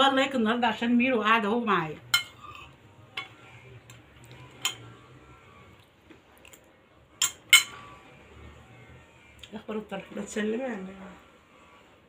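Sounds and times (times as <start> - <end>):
metal spoon clinking on plate: 2.1 - 3.3, 7.2 - 7.8.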